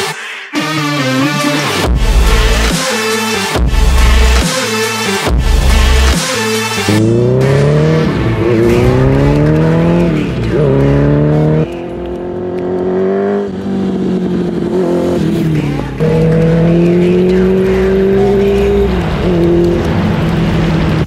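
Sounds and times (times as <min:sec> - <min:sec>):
motorcycle engine revving: 0:05.5 - 0:21.0.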